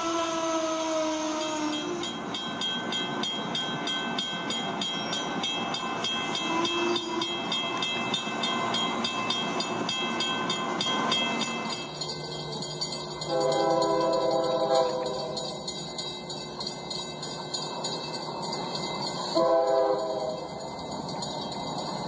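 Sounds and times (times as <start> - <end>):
toy train wheels clicking: 11.2 - 22.0
horn-like tone: 13.3 - 15.4, 19.4 - 20.4.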